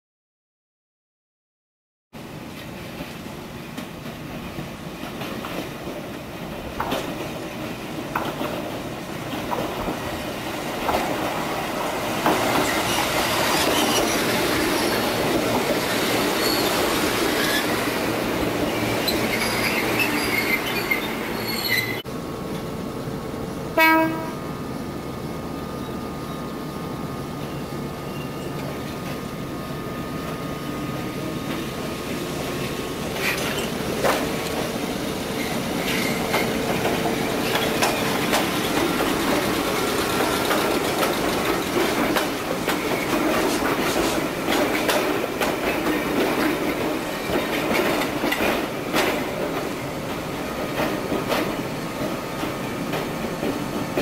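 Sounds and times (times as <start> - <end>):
electric train arriving: 2.2 - 54.0
train wheels clicking over rail joints: 2.5 - 22.7, 31.2 - 54.0
horn blast: 23.8 - 24.4.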